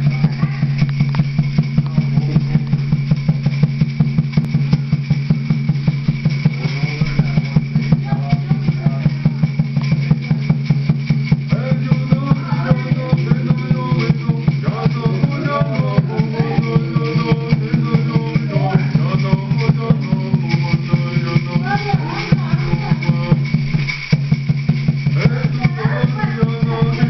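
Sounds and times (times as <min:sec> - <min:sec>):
gourd rattle shaking: 0:00.0 - 0:27.0
water drum beaten rapidly: 0:00.0 - 0:27.0
person singing: 0:11.5 - 0:23.6, 0:25.2 - 0:27.0.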